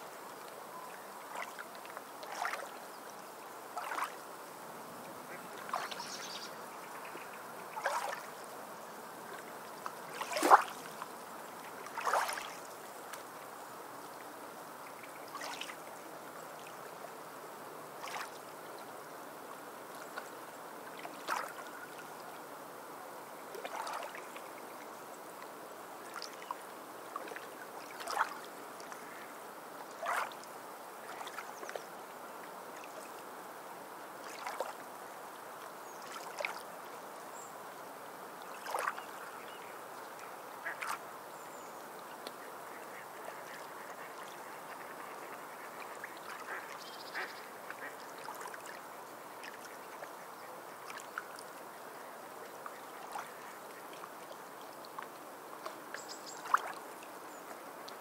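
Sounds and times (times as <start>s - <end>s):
flowing water: 0.0s - 58.0s
birds calling: 42.7s - 47.9s.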